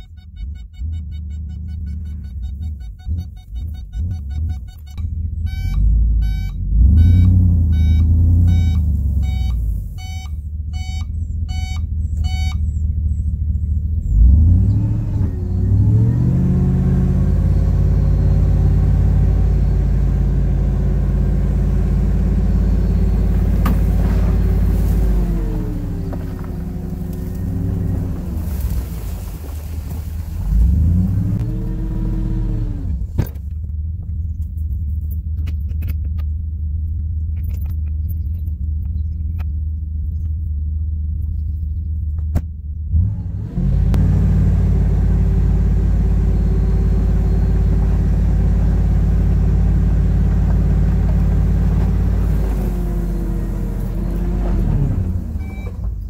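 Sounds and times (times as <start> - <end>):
pulsing electronic beep: 0.0 - 12.7
truck engine rising in pitch: 0.0 - 34.3, 42.8 - 56.0.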